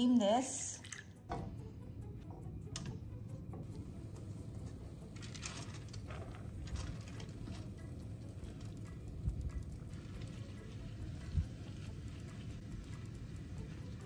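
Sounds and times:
wet beans pattering into metal basket: 3.7 - 12.4.

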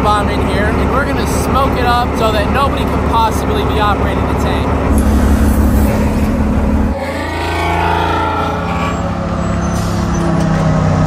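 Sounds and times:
tank engine running: 0.0 - 11.0
brief wavering pitched sound: 4.9 - 8.8.

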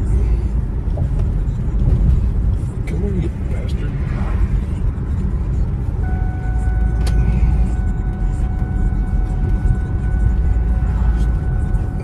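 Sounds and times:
road and engine rumble in car: 0.0 - 12.0
steady pitched tone: 6.0 - 12.0.

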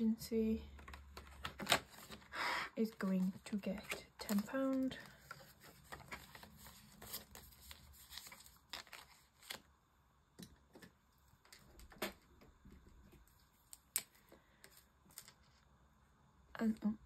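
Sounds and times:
banknotes rustling: 0.8 - 9.7.

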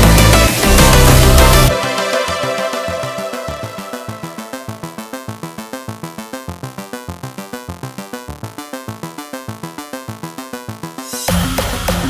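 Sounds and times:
repeated notes over bass beat: 0.0 - 12.0.

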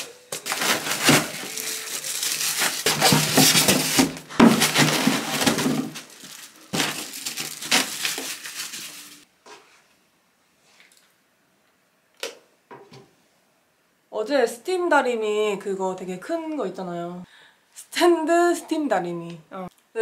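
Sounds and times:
packing crackling and rustling: 0.0 - 9.2.

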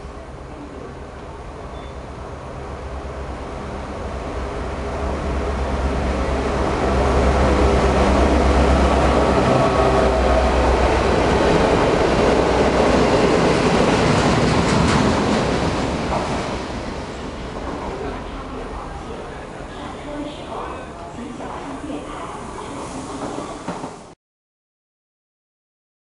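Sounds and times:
diesel locomotive engine drone: 0.0 - 22.6
train wheels clattering on rails: 11.1 - 18.3, 23.0 - 24.1.

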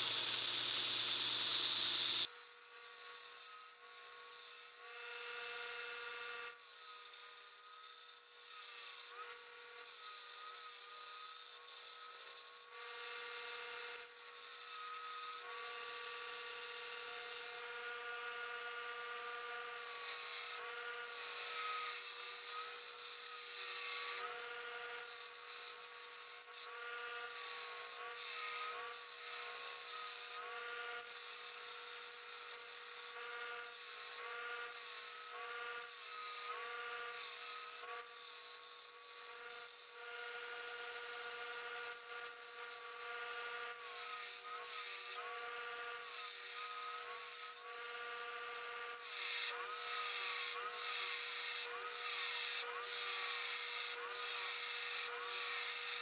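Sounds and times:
belt grinder grinding steel: 0.0 - 2.3, 3.2 - 56.0.

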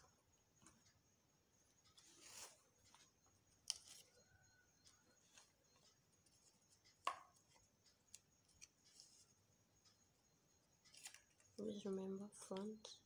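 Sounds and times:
pencil and fabric rustling: 1.8 - 9.5.

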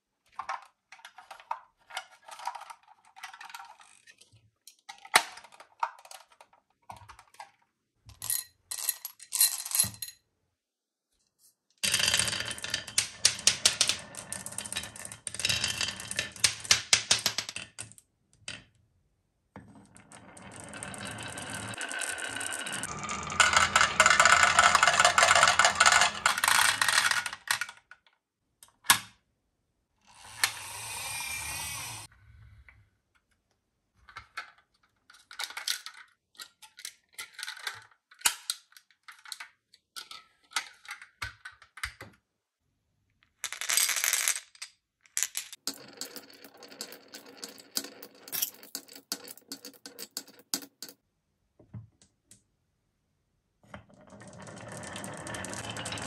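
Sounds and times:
marbles clattering on wooden track: 11.8 - 18.7, 19.8 - 27.9, 43.4 - 51.0, 53.9 - 56.0.

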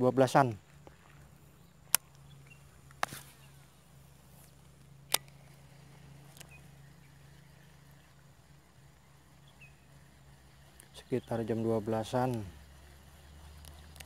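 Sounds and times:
faint low hum: 0.0 - 14.0
fishing reel clicks: 4.8 - 8.2, 9.1 - 14.0.

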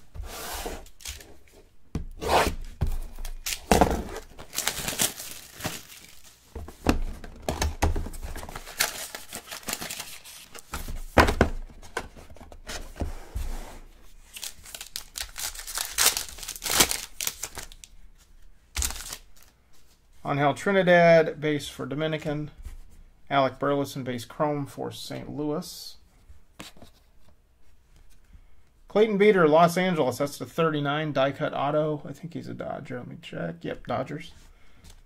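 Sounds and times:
cards being handled: 0.7 - 12.8, 14.3 - 19.5
card packs ripped open: 0.8 - 1.3, 2.4 - 6.4, 7.6 - 10.7, 14.3 - 17.9, 18.8 - 19.5
plastic wrapping tearing: 3.2 - 6.4, 8.4 - 10.7, 14.3 - 17.9, 18.8 - 19.5.

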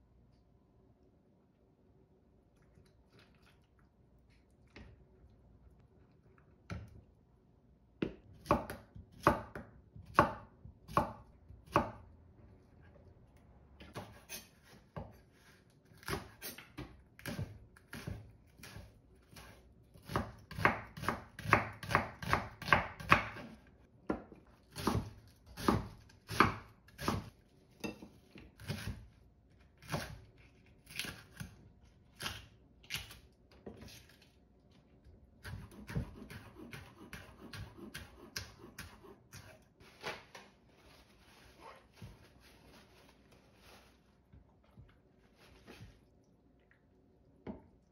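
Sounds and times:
knife slicing vegetables on wood: 13.9 - 23.6, 24.7 - 29.1, 29.8 - 31.6, 35.4 - 40.3.

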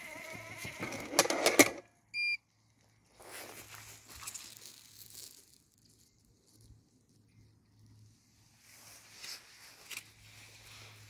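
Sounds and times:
robotic mower knocking station: 0.1 - 1.8
short electronic beep: 2.2 - 2.4
soft rustling: 2.9 - 11.0.

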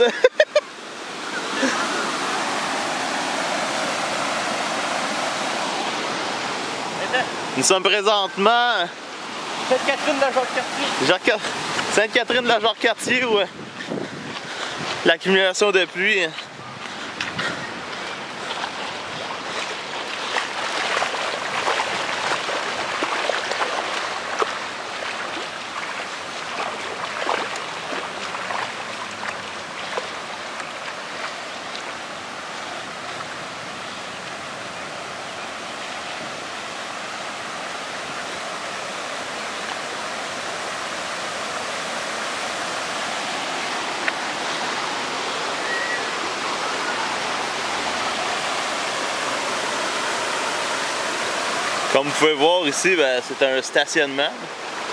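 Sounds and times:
floodwater rushing: 0.0 - 54.9
feet splashing through water: 13.5 - 15.2, 16.2 - 36.3.

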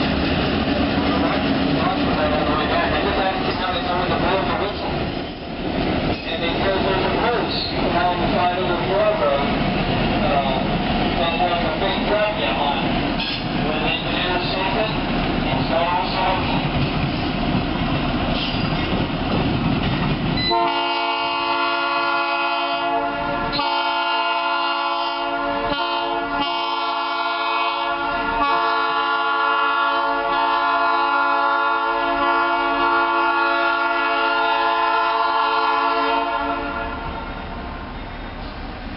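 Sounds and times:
train rolling rumble: 0.0 - 38.9
locomotive air horn blasts: 20.4 - 37.3.

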